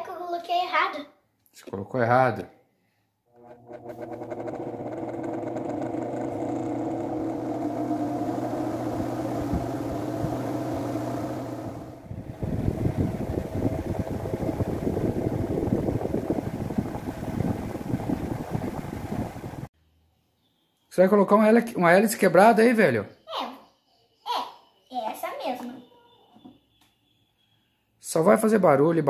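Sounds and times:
desk fan humming: 0:03.3 - 0:19.7
fan rattling on tile floor: 0:03.4 - 0:19.7.

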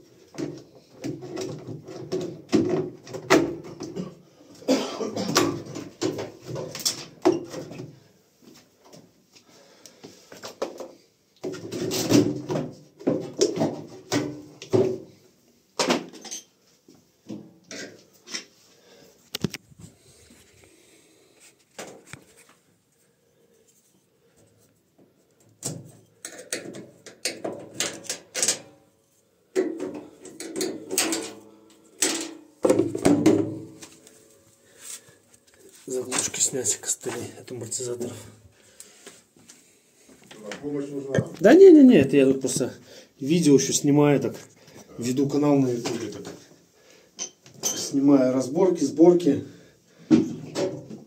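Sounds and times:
washing machine parts clattering: 0:00.3 - 0:07.9, 0:11.4 - 0:15.0, 0:15.8 - 0:16.6, 0:25.6 - 0:28.8, 0:29.5 - 0:33.8, 0:47.2 - 0:48.0.

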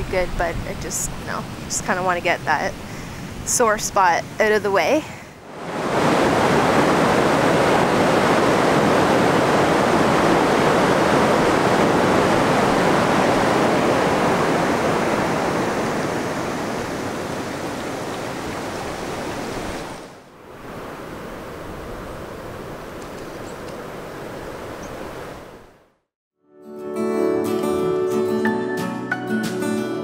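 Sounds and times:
water rushing over rapids: 0:05.4 - 0:23.0.

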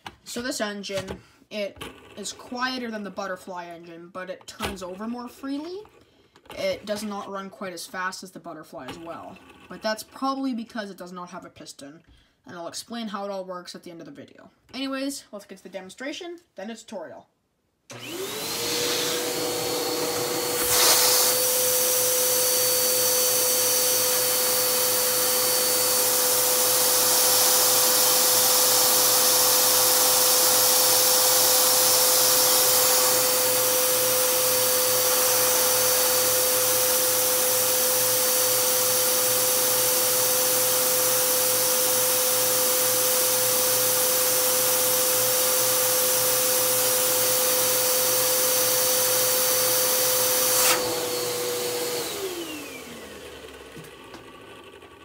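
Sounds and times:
vacuum cleaner running: 0:17.9 - 0:55.0.

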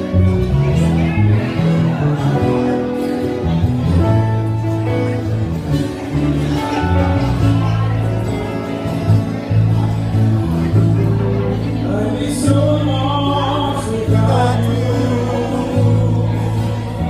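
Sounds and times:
low bass notes: 0:00.0 - 0:17.0
second guitar: 0:00.0 - 0:17.0
strummed acoustic guitar: 0:00.0 - 0:17.0
person singing: 0:11.6 - 0:17.0.

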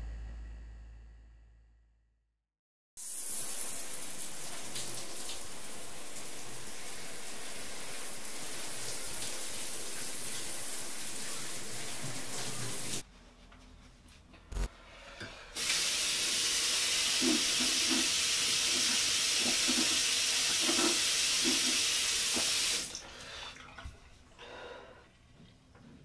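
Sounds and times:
tap running into sink: 0:17.2 - 0:22.7.

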